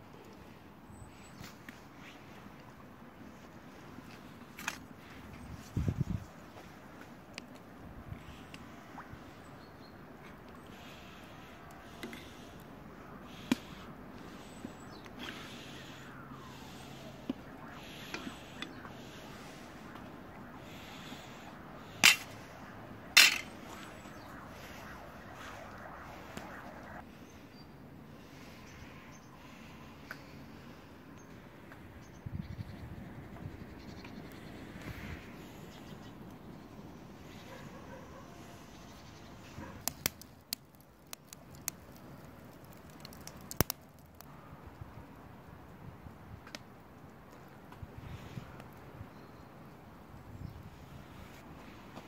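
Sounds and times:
firewood crackling: 10.6 - 27.0, 39.6 - 44.3.

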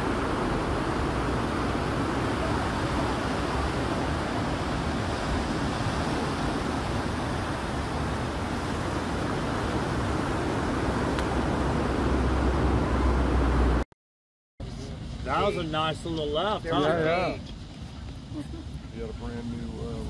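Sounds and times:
highway traffic passing: 0.0 - 13.8
surf: 0.0 - 13.8, 14.6 - 20.0.

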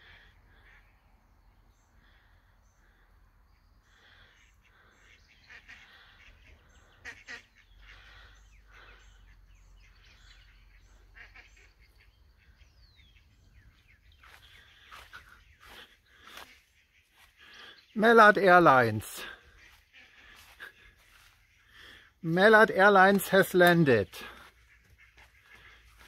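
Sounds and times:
ducks quacking in flight: 0.0 - 0.9, 3.9 - 18.6, 19.2 - 22.2, 24.3 - 26.0.

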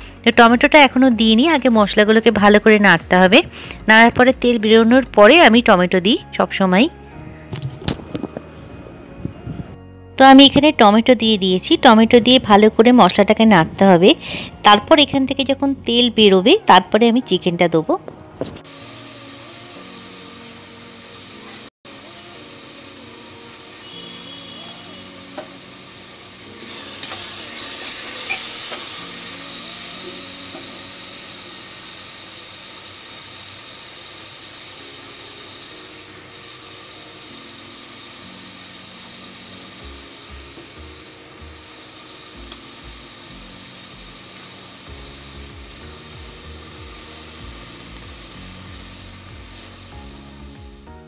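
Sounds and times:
soft background music: 0.0 - 51.0
spices sizzling in hot oil: 18.6 - 51.0.

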